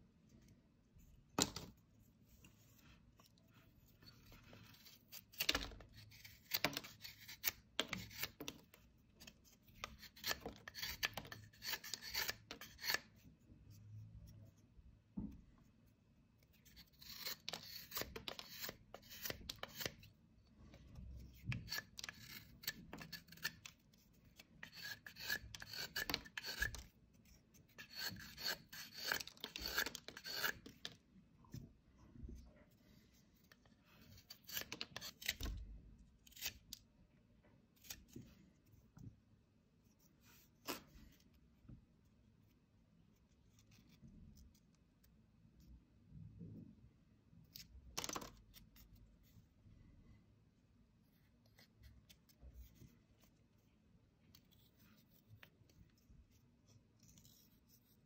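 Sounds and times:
knife scraping wood: 4.0 - 8.6, 9.2 - 13.2, 16.6 - 20.1, 21.4 - 31.0, 33.9 - 35.5.

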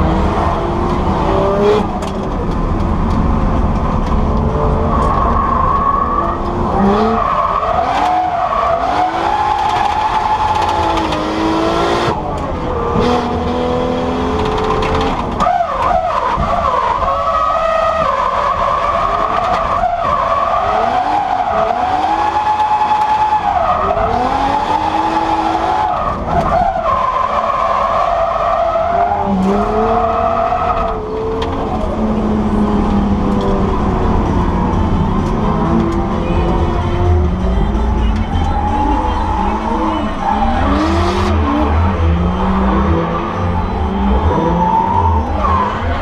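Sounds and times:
tyres skidding and squealing: 0.0 - 46.0
car engine revving hard: 20.4 - 26.5, 38.7 - 46.0.

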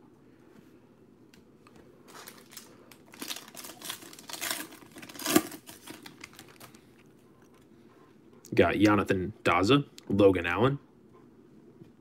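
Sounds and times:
foil wrapper tearing and crinkling: 2.1 - 6.8.

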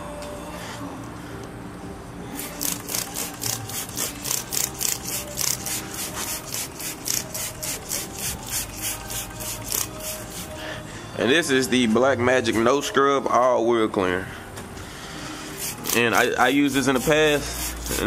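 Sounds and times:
spray bottle squirting: 2.4 - 10.6, 15.6 - 18.0.

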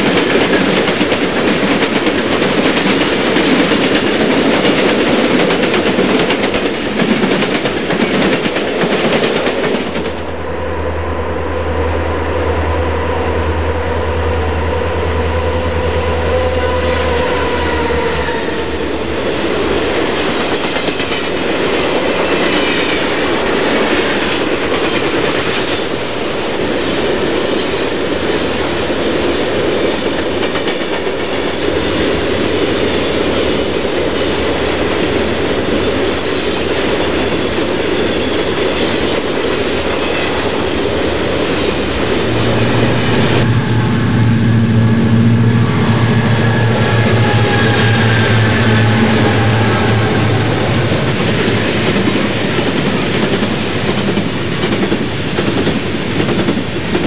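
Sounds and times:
model train wheels rumbling: 28.3 - 57.0
low hum: 41.8 - 51.7.

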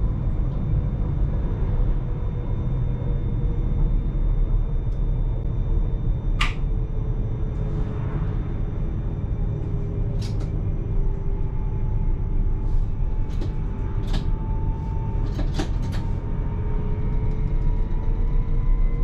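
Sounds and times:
faint steady whines: 0.0 - 19.0
train low rumble: 0.0 - 19.0.

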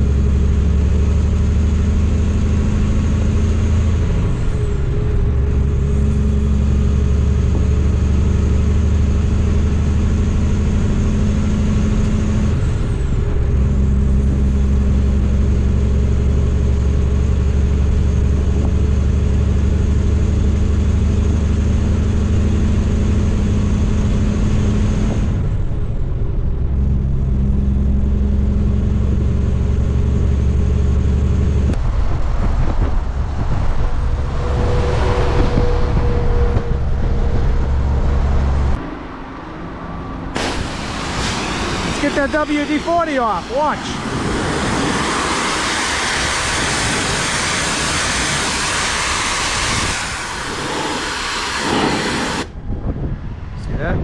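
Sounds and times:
truck diesel engine drone: 0.0 - 54.0
noisy even sound: 31.8 - 52.6.

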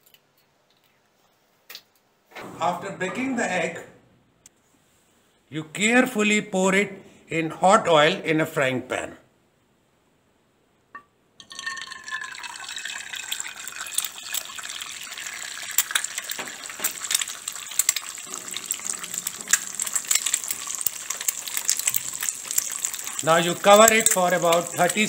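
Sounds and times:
egg sizzling in hot oil: 11.4 - 25.0
oil spitting crackles: 12.0 - 25.0.

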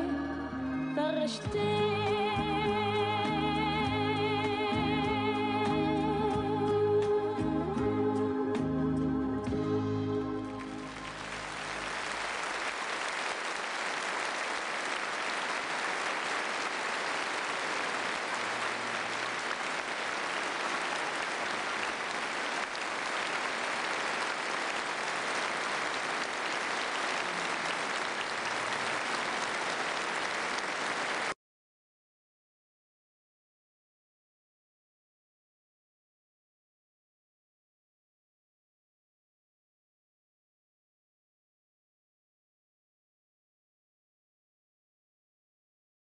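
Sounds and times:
organ-backed song: 0.0 - 12.3
audience applauding: 10.5 - 31.4.

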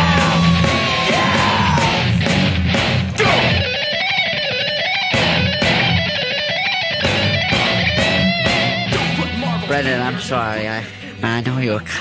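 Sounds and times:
steady drum beat: 0.0 - 3.7, 7.0 - 10.4
electric guitar: 0.0 - 11.2
bending guitar lead: 0.0 - 11.7.

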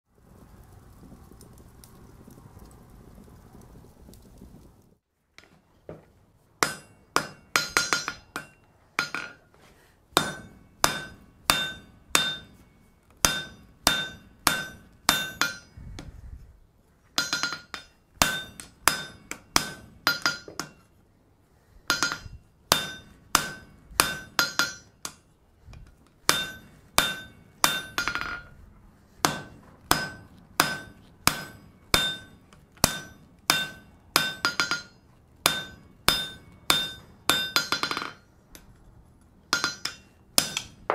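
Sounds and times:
hammer striking metal on anvil: 6.6 - 9.4, 10.2 - 15.8, 17.2 - 20.9, 21.9 - 25.3, 26.3 - 28.5, 29.2 - 38.7, 39.5 - 40.9.

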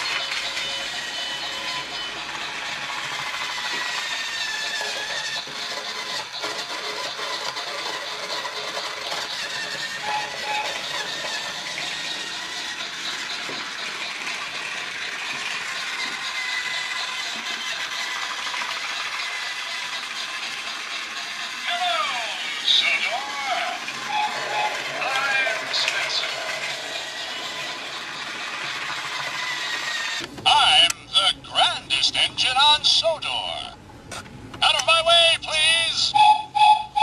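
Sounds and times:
toy train wheels rattling on track: 0.0 - 30.8, 34.7 - 37.0
toy train motor whir: 0.0 - 30.9, 34.7 - 37.0.

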